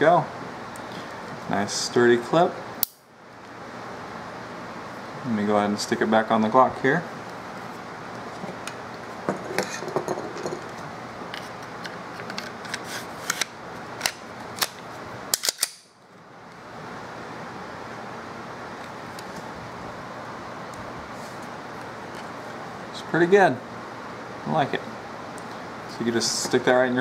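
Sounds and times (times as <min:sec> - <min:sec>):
steady low hiss: 0:00.0 - 0:27.0
pistol slide clicks and clacks: 0:13.3 - 0:15.9.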